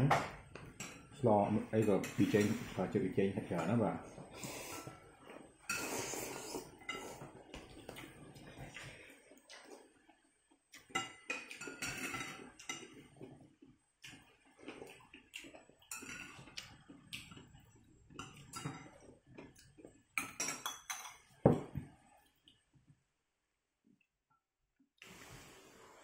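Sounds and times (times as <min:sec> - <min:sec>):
utensils clinking on ceramic bowl: 0:10.8 - 0:13.0, 0:15.9 - 0:16.6, 0:20.2 - 0:21.6.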